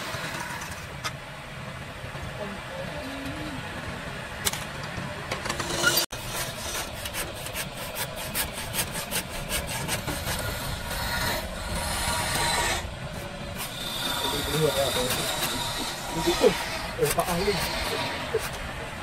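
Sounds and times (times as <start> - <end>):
hand saw rasping through wood: 6.1 - 19.0.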